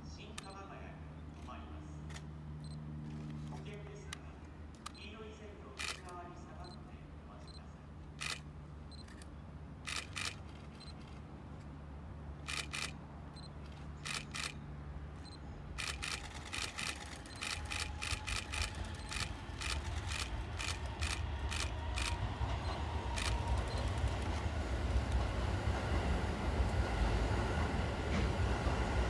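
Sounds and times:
camera shutters clicking: 3.0s - 5.1s, 5.7s - 6.7s, 8.0s - 11.8s, 12.4s - 22.2s, 23.2s - 24.3s
electric train rumble: 4.9s - 29.0s.

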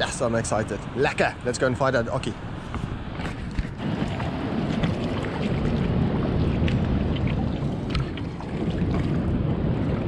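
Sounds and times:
surf: 0.0s - 10.0s
wind on microphone: 0.0s - 10.0s
water splashing in rock pool: 3.8s - 10.0s.

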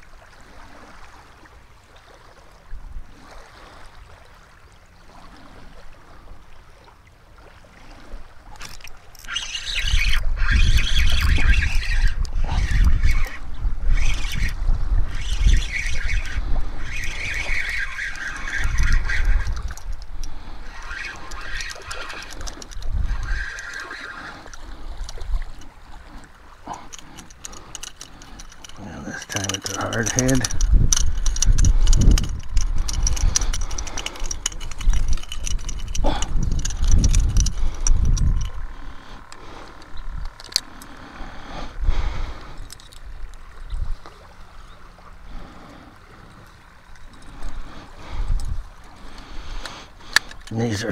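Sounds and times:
small clicks and rattles: 8.6s - 25.8s, 26.7s - 41.0s, 42.5s - 43.4s, 46.3s - 50.9s
gusty wind buffeting microphone: 9.2s - 26.2s, 26.8s - 40.6s, 41.2s - 44.1s, 46.6s - 50.9s.

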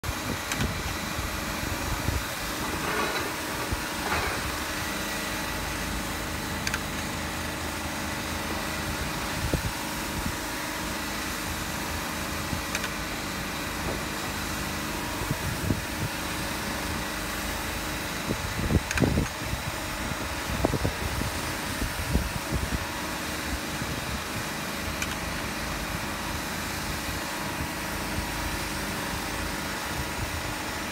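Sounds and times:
machine hum and hiss: 0.0s - 30.9s
thin steady whine: 0.0s - 30.9s.

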